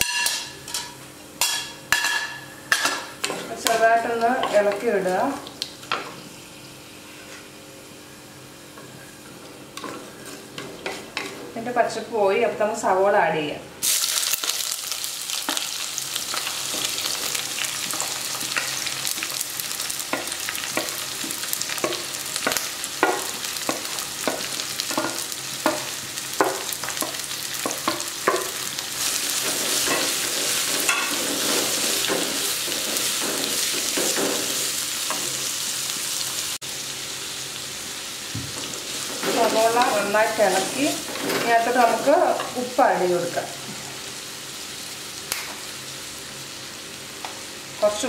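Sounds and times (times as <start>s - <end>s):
onions sizzling in oil: 0.0s - 12.6s, 13.8s - 48.0s.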